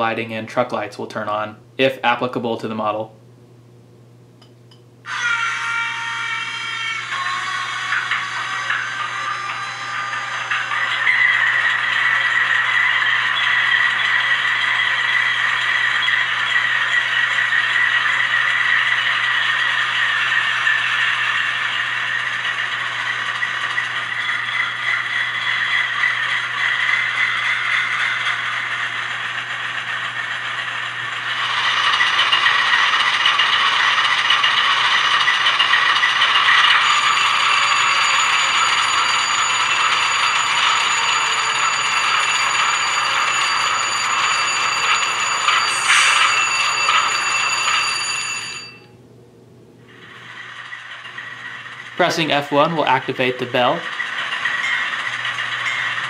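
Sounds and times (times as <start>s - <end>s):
high whine: 4.4s - 49.0s.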